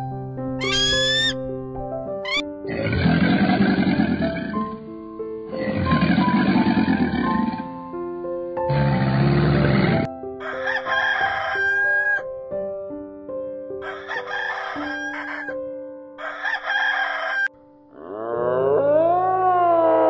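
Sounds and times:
soft background music: 0:00.0 - 0:20.0
long rising animal call: 0:05.5 - 0:07.8, 0:17.9 - 0:20.0
rooster crowing: 0:10.4 - 0:12.2, 0:13.8 - 0:15.6, 0:16.2 - 0:20.0.

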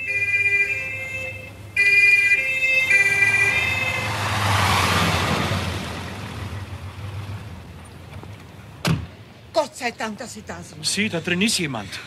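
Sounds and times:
two-tone police siren: 0:00.0 - 0:05.2
car rushing past: 0:03.0 - 0:07.8.

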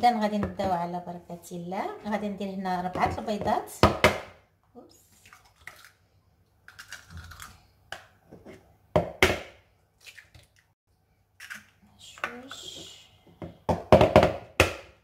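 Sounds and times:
eggshells cracking: 0:06.7 - 0:07.6.

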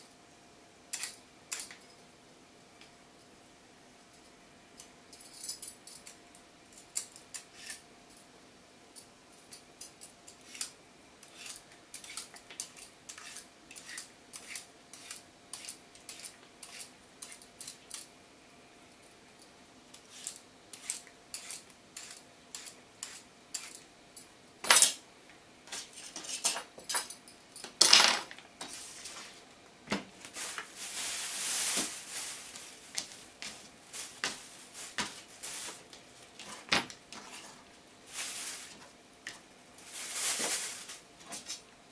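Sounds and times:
peeler scraping radish: 0:10.4 - 0:17.7, 0:20.0 - 0:23.8.

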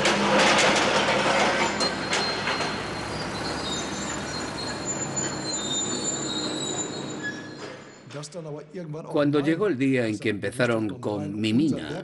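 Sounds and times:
excavator engine rumble: 0:00.0 - 0:07.3
thin high squeals: 0:01.4 - 0:08.2.

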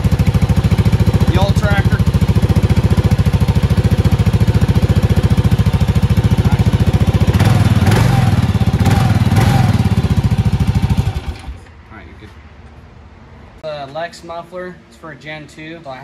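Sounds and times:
motorcycle engine running: 0:00.0 - 0:11.6.

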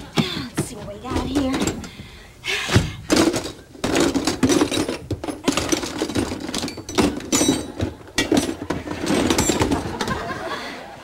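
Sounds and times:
metal tools clinking and rattling: 0:03.1 - 0:10.2.

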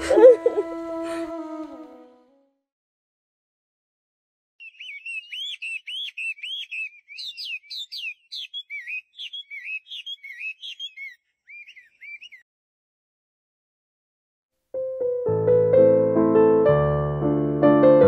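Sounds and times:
bird chirping: 0:04.6 - 0:12.4.

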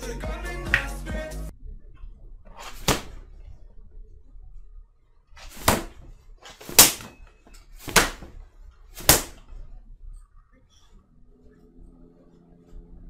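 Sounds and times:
pork fat slapped down hard: 0:02.6 - 0:03.2, 0:05.5 - 0:07.1, 0:07.8 - 0:08.3, 0:09.0 - 0:09.4.

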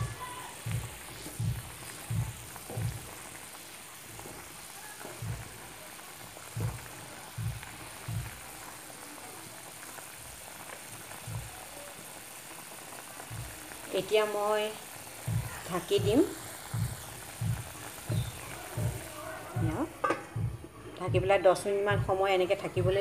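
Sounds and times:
water boiling and bubbling: 0:00.0 - 0:23.0
spatula thudding in pan: 0:16.8 - 0:20.7.

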